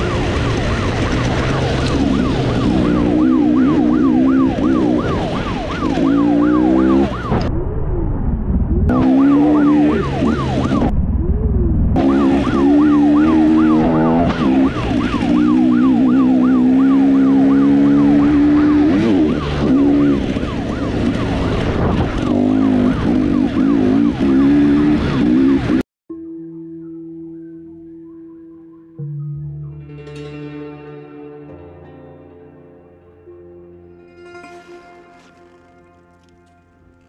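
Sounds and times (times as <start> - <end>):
police siren yelping: 0.0 - 8.1, 8.8 - 25.8
road noise: 0.0 - 25.9, 34.1 - 37.0.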